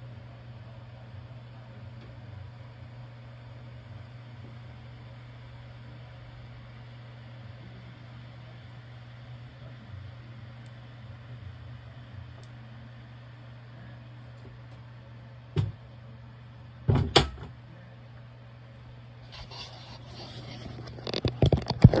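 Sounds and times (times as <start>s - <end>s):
steady low hum: 0.0s - 22.0s
irregular clicks and rustles: 20.4s - 22.0s.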